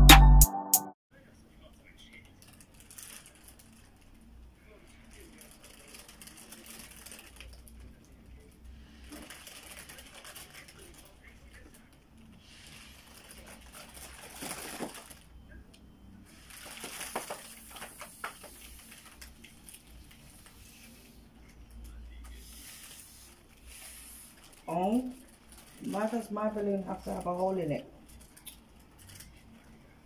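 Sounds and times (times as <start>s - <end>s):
foil balloon crinkling: 2.4s - 4.2s, 5.0s - 8.0s, 8.9s - 15.3s, 16.3s - 21.0s, 22.3s - 29.4s.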